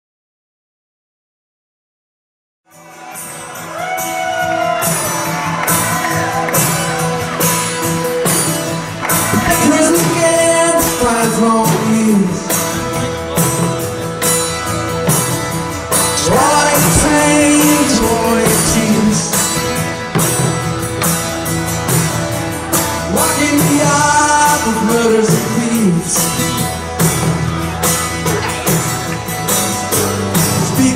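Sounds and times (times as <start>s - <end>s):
steady percussion beat: 4.8s - 30.9s
person singing: 9.0s - 13.4s, 15.9s - 20.1s, 22.6s - 26.8s, 29.9s - 30.9s.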